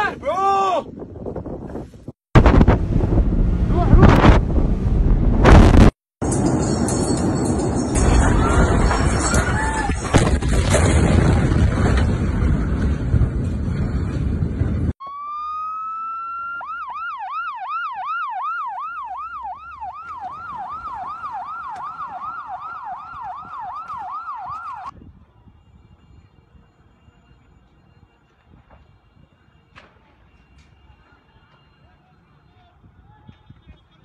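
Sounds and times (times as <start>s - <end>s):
loud rushing noise: 2.4s - 5.9s
electronic siren wailing and yelping: 15.0s - 24.9s.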